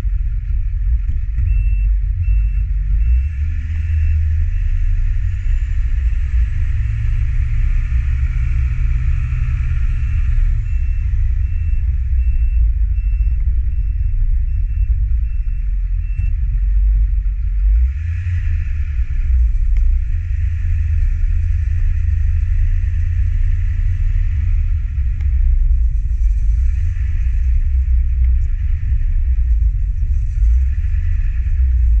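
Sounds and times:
dump truck engine rumble: 0:00.0 - 0:32.0
repeating high beep: 0:01.4 - 0:04.7, 0:10.0 - 0:16.4.

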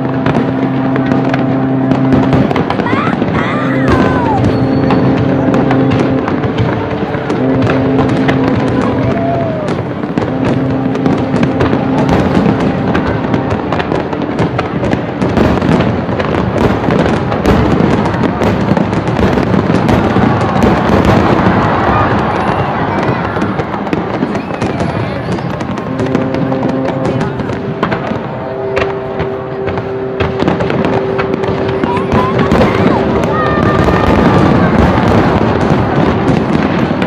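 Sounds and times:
fireworks bursting and crackling: 0:00.0 - 0:37.0.

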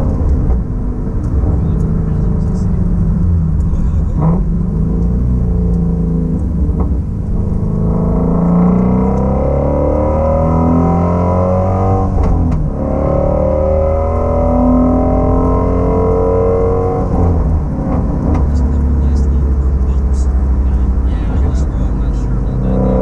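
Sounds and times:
car engine heard from cabin: 0:00.0 - 0:23.0.

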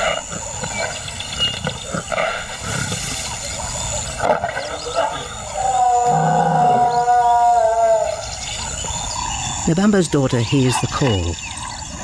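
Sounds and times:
lioness calling: 0:01.7 - 0:09.6.

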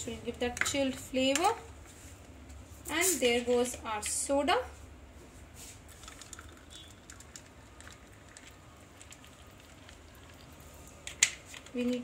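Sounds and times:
soda pouring and fizzing: 0:05.9 - 0:11.0.

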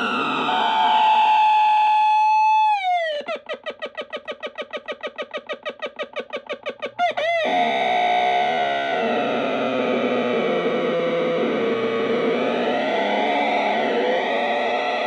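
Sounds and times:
buzzy electronic glitch tone: 0:07.5 - 0:15.0.

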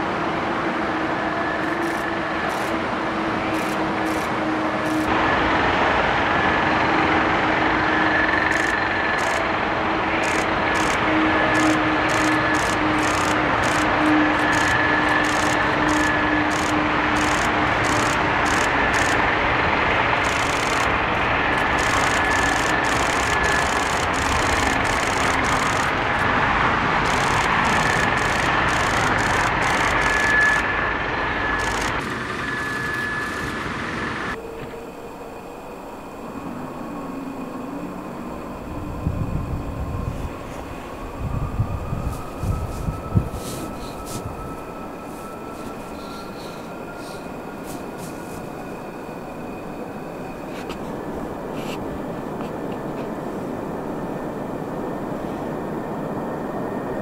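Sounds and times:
jet engines whining: 0:00.0 - 0:57.0
motorway traffic noise: 0:00.0 - 0:57.0.

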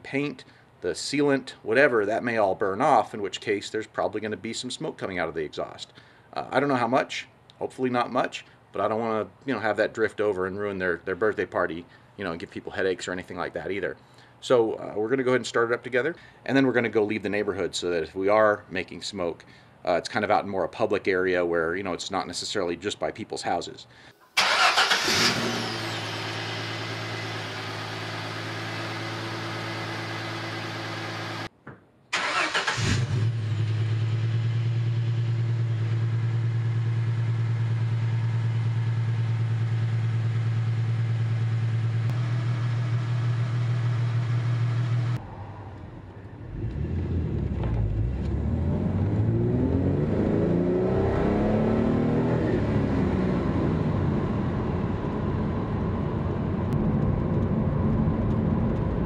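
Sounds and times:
car engine starting: 0:24.4 - 0:31.5, 0:32.1 - 0:59.0
car engine revving from cabin: 0:46.5 - 0:54.5.

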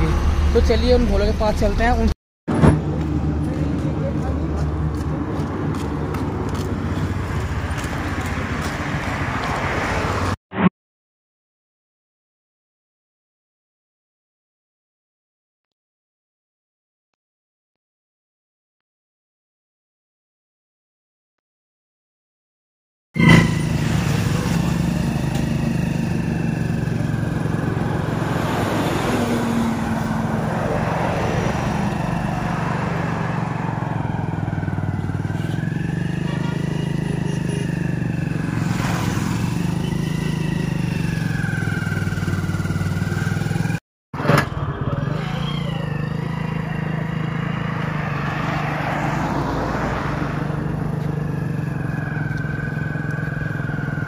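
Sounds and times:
motorcycle engine running: 0:23.2 - 0:30.5, 0:31.5 - 0:48.2, 0:50.4 - 0:54.0.

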